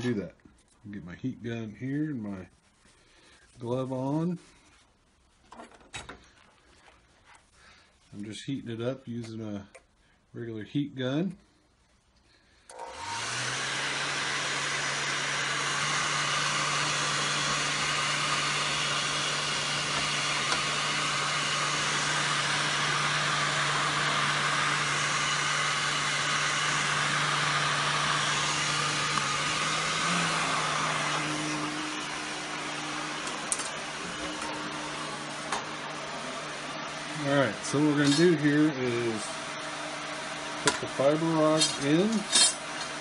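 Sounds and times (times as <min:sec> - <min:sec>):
heat gun fan blowing: 0:12.6 - 0:43.0.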